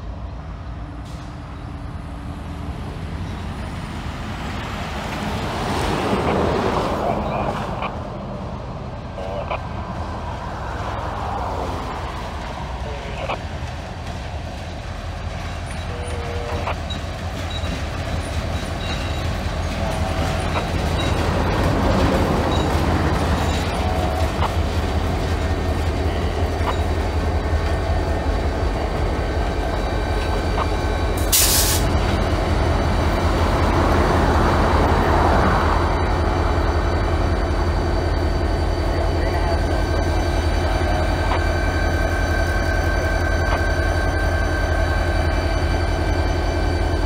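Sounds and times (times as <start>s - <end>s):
locomotive engines droning: 0.0s - 47.0s
steel wheels squealing on rails: 14.7s - 47.0s
burst of hiss: 31.3s - 31.9s.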